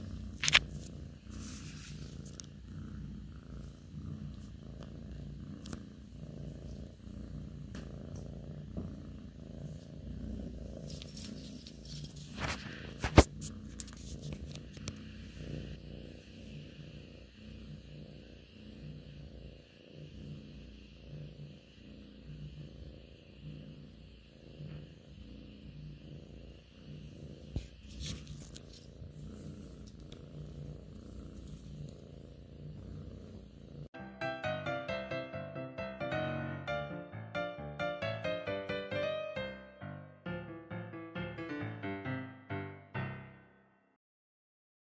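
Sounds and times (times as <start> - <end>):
cat purring: 0.0 - 34.0.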